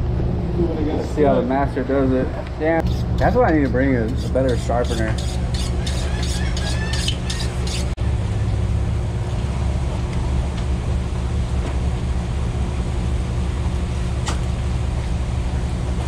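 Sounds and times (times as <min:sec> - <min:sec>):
low mechanical hum: 0:00.0 - 0:16.0
knife on sharpener: 0:04.1 - 0:07.9.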